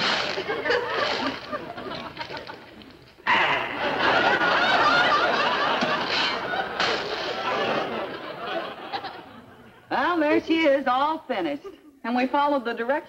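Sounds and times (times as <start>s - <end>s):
audience laughing: 0.0s - 9.9s.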